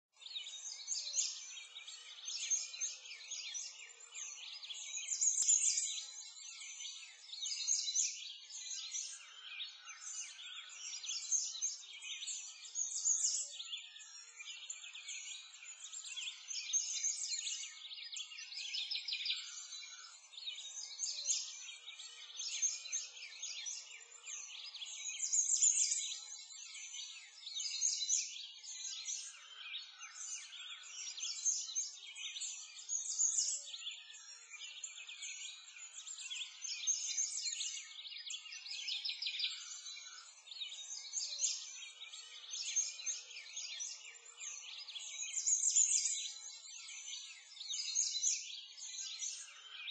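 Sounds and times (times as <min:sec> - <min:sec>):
many birds chirping: 0:00.0 - 0:49.9.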